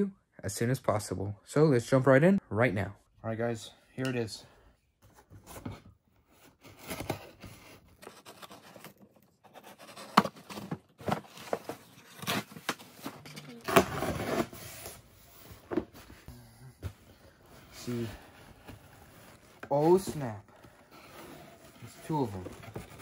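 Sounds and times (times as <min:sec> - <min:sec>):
cardboard scraping and sliding: 0:06.5 - 0:16.2, 0:17.7 - 0:23.0
cardboard tearing: 0:06.7 - 0:14.9.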